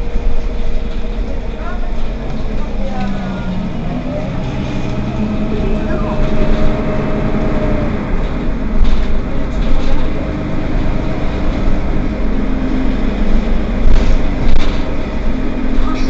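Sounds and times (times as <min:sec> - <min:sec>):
bus engine rumble: 0:00.0 - 0:16.0
whining tone: 0:02.0 - 0:09.0
rising tone: 0:03.1 - 0:08.5.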